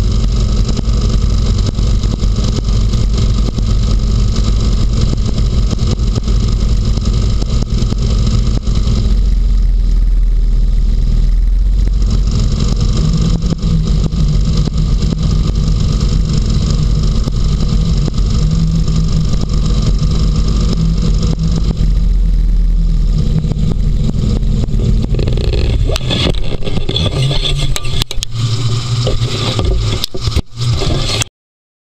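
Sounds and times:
hovercraft engine droning: 0.0 - 31.3.

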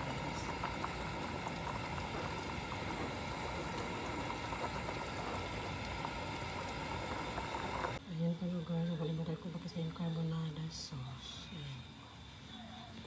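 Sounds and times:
water boiling with pops: 0.0 - 8.0, 8.6 - 10.3.

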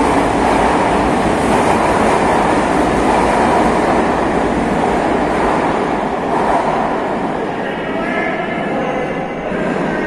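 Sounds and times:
train wheels rumbling on rails: 0.0 - 7.6.

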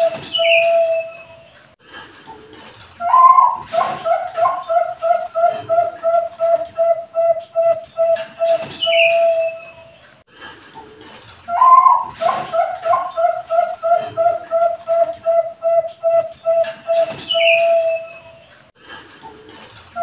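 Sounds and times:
dove cooing: 0.0 - 1.5, 2.3 - 9.9, 11.5 - 18.4.

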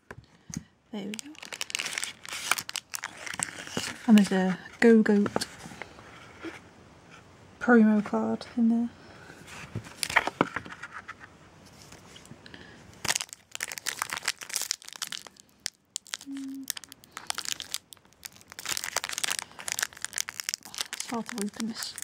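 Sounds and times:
foil wrapper crinkling: 1.0 - 4.3, 13.0 - 22.0.

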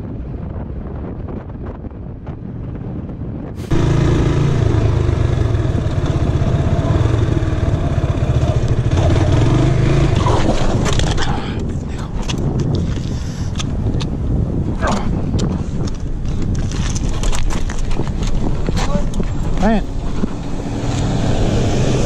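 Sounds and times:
wind rushing over microphone: 0.0 - 22.0
motorcycle engine running: 3.6 - 11.2.

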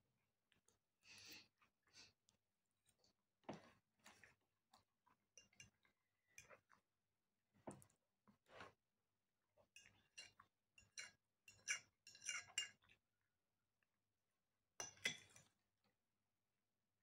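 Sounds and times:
metal fork clinking on a plate: 10.1 - 12.8.

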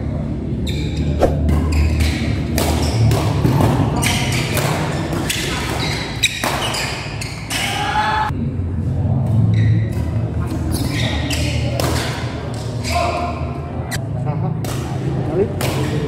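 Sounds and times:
rackets hitting shuttlecock: 1.2 - 6.9
shoes squeaking on court floor: 4.0 - 7.7.

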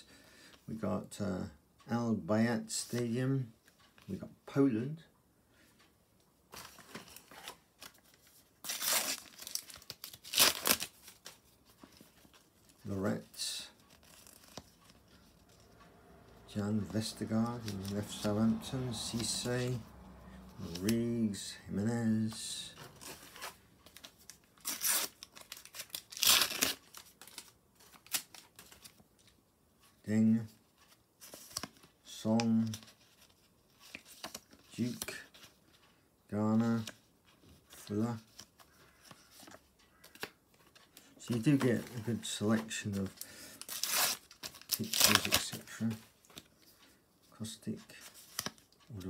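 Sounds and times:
paper rustling and tearing: 6.6 - 12.5, 22.8 - 29.0, 41.3 - 46.4
wrapper ripping: 8.7 - 11.2, 24.6 - 27.3, 43.6 - 45.6.

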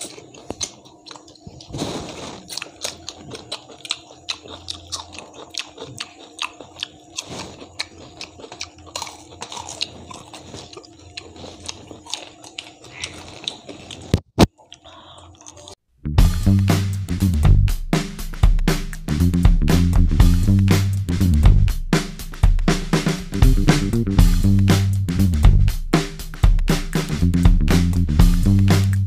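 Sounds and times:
chewing crunchy fried fish: 0.0 - 15.8.

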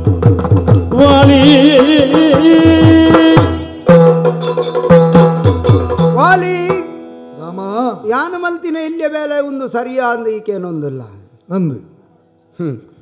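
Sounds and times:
man singing: 0.8 - 4.2.

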